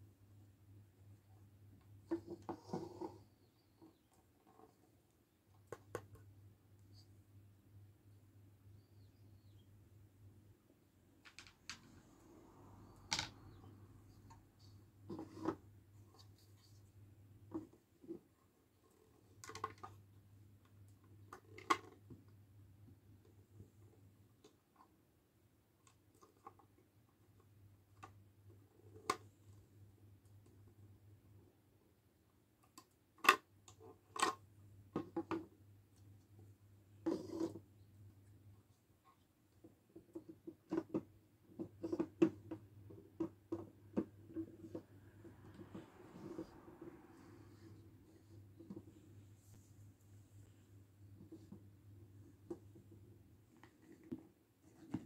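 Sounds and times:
plastic toys knocking on table: 0:11.2 - 0:11.8, 0:13.1 - 0:13.4.

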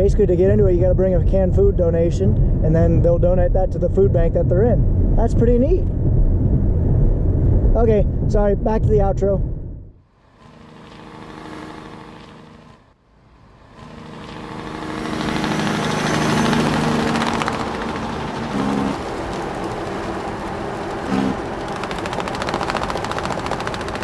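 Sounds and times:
tractor engine running: 0:13.7 - 0:24.0.

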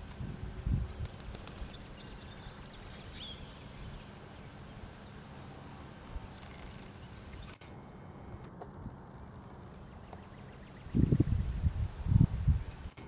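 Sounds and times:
faint high chirp: 0:01.7 - 0:04.2.

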